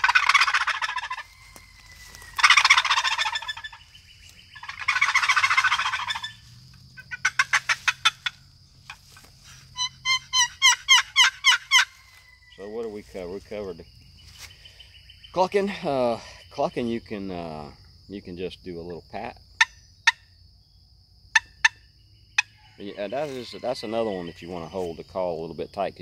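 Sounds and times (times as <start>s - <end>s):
box turkey call gobbles: 0.0s - 13.3s, 18.9s - 20.3s, 21.3s - 25.0s
short pitched turkey calls: 0.0s - 13.4s, 19.6s - 20.3s.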